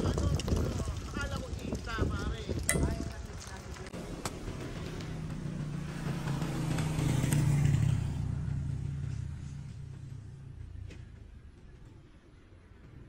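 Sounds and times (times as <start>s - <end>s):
vehicles driving past: 2.8s - 13.0s.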